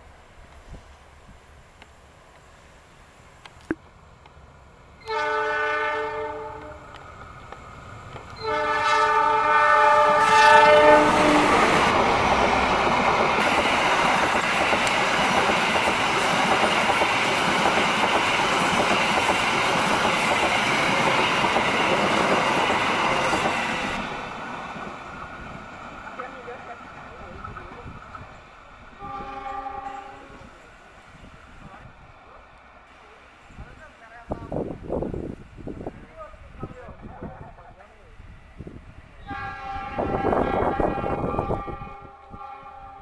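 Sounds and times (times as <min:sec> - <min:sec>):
train wheels rumbling on rails: 0:00.0 - 0:43.0
train horn blasts: 0:05.0 - 0:07.0, 0:08.4 - 0:11.8, 0:29.0 - 0:30.5, 0:39.2 - 0:43.0.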